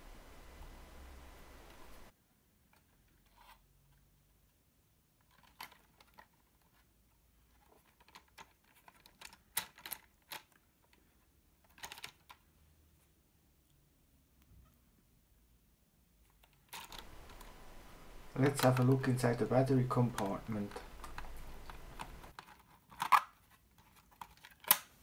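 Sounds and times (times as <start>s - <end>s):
plastic toy car clicks and taps: 24.1s - 24.9s.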